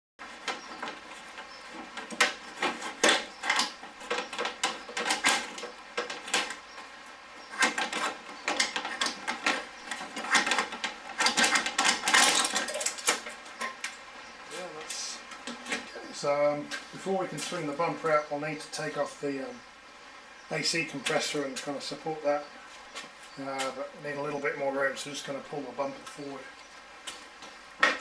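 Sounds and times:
metal and plastic parts rattling: 0:01.7 - 0:06.6, 0:07.5 - 0:13.8.

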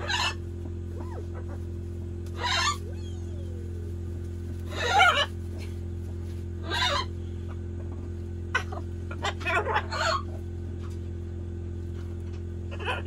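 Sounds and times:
macaw squawking: 0:00.0 - 0:01.7, 0:02.3 - 0:05.7, 0:06.5 - 0:07.2, 0:08.6 - 0:10.4, 0:12.7 - 0:13.0
low hum: 0:00.0 - 0:13.0.

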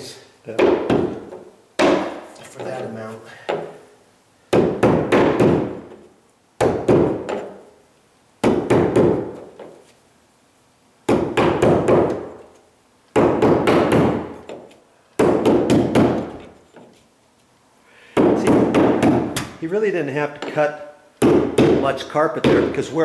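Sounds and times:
hammer-like blows on carpet: 0:06.6 - 0:07.6, 0:08.4 - 0:09.7.

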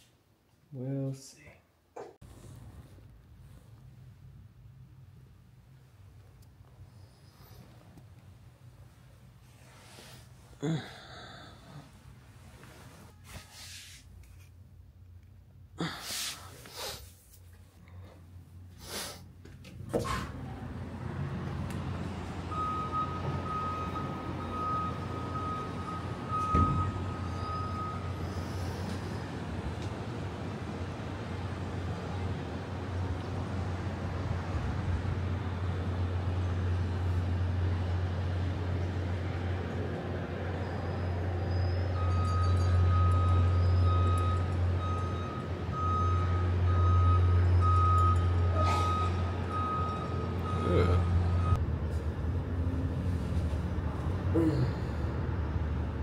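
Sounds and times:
reversing alarm beeping: 0:22.5 - 0:28.9, 0:40.9 - 0:51.6.

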